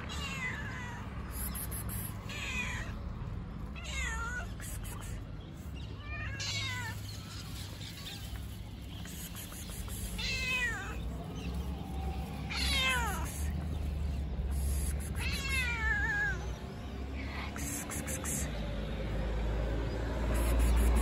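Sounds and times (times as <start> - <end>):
cat meowing: 0.0 - 1.5, 2.2 - 3.0, 3.8 - 4.6, 6.0 - 7.1, 10.1 - 11.0, 12.5 - 13.5, 15.1 - 16.6.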